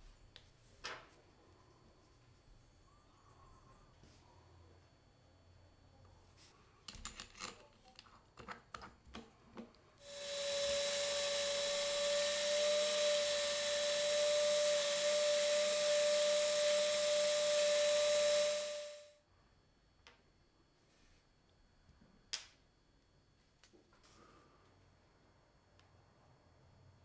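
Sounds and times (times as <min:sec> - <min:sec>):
cordless drill humming: 0:10.0 - 0:19.0
sanding hiss: 0:10.0 - 0:19.1.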